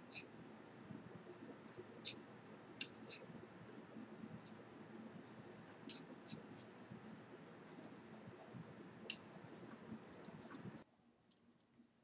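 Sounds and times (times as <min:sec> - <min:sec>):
low steady hum: 0:00.0 - 0:12.0
wooden knitting needles clicking: 0:02.8 - 0:03.3, 0:05.8 - 0:06.8, 0:09.0 - 0:11.7.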